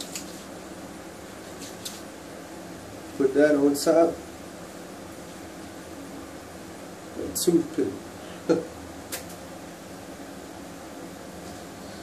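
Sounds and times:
steady low hum: 0:00.0 - 0:12.0
hands rubbing hair: 0:01.4 - 0:02.1.

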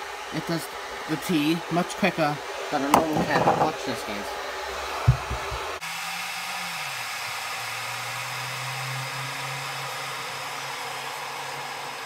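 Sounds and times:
hot water dispensing hiss: 0:00.0 - 0:12.0
low pump hum: 0:04.9 - 0:05.8.

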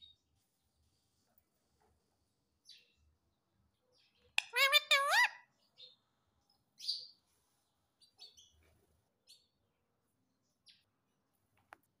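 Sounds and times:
parakeet chirping softly: 0:03.7 - 0:09.6.

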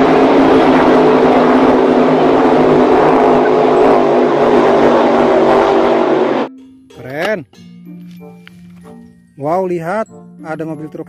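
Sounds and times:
speedboat engine at high revs: 0:00.0 - 0:06.5.

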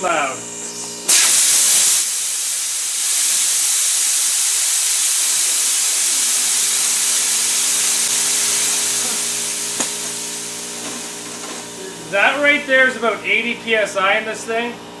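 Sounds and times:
compressed air hissing: 0:00.4 - 0:12.1.

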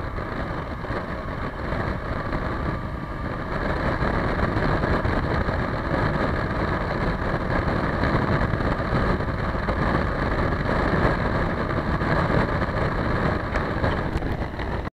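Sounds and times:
motorcycle engine running: 0:00.0 - 0:14.9
wind and road noise: 0:00.0 - 0:14.9.

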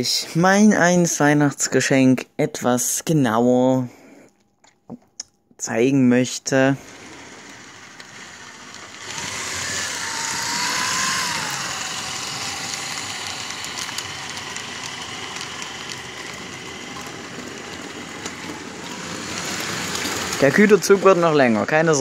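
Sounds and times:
model train motor whine: 0:06.6 - 0:22.0
wheels rumbling on track: 0:06.8 - 0:22.0.

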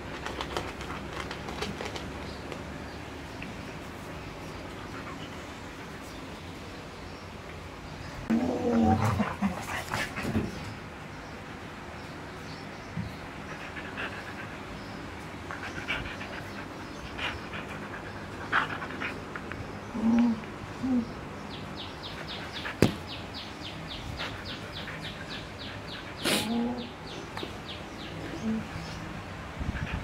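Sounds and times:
dog making low vocal sounds: 0:19.9 - 0:21.2, 0:24.2 - 0:27.1
dog sniffing: 0:24.0 - 0:26.6.

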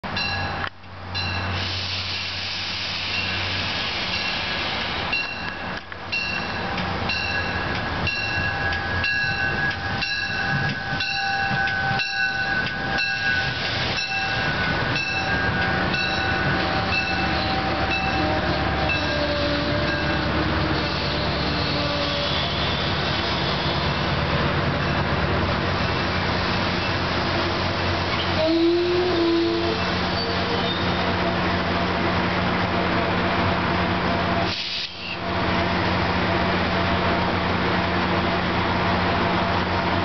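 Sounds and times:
train rumble: 0:00.0 - 0:40.0
train wheels clicking: 0:03.1 - 0:25.1.

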